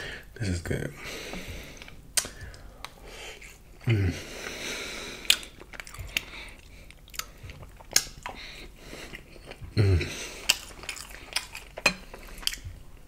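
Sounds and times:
person humming: 0:03.8 - 0:04.3, 0:09.7 - 0:10.2
lip and tongue clicks: 0:05.2 - 0:08.4
wet chewing: 0:05.2 - 0:12.9.

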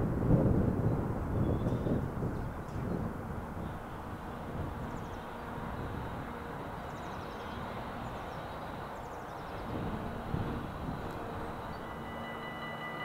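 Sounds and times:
low outdoor rumble: 0:02.0 - 0:13.0
bird's descending trill: 0:04.3 - 0:13.0.

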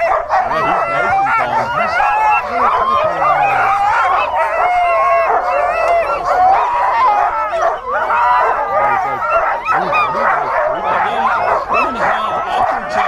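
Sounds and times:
many dogs barking: 0:00.0 - 0:13.0.

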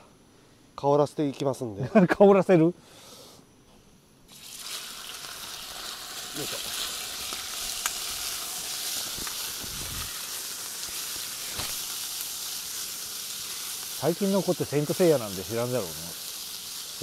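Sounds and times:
meat sizzling in hot oil: 0:04.3 - 0:17.0.

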